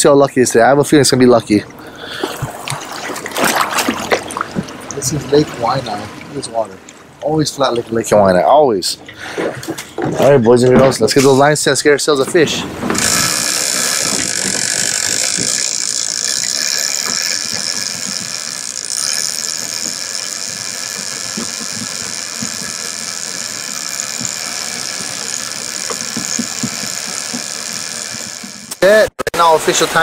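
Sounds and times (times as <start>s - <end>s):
fishing reel clickers buzzing: 13.0s - 28.8s.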